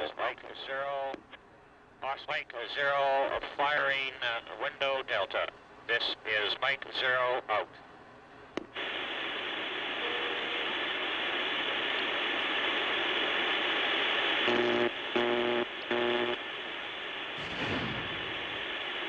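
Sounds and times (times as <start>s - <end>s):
dense rattling rush of noise: 17.4s - 19.0s.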